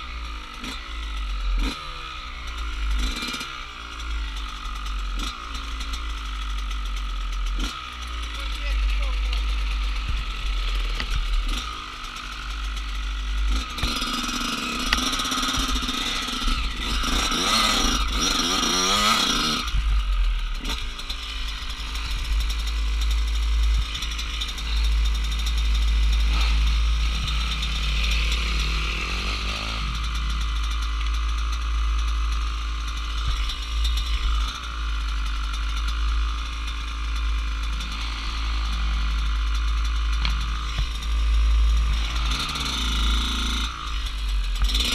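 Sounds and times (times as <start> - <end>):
motorcycle engines revving: 0.0 - 44.9
steady low rumble: 3.7 - 18.5, 19.6 - 44.8.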